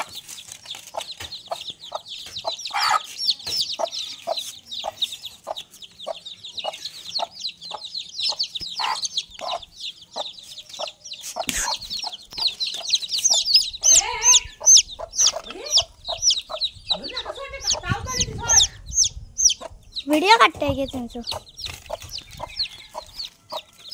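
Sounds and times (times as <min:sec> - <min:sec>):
chicks peeping: 0:00.0 - 0:23.9
hen clucking softly: 0:01.0 - 0:17.9.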